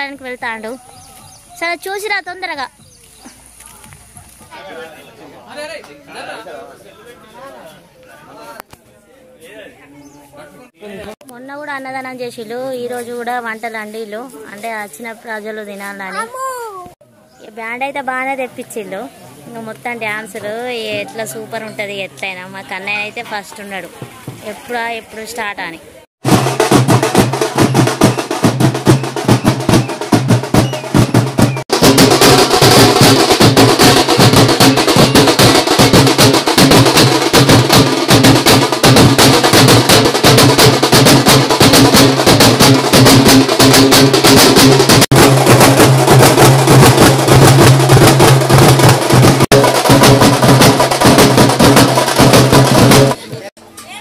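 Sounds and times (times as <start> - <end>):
band of drums beating fast: 26.2 - 53.5.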